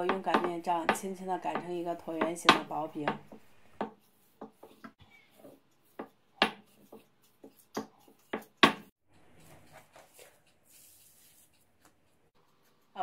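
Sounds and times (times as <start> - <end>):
rolling pin knocking on board: 0.0 - 4.9
rolling pin rolling dough: 0.0 - 12.2.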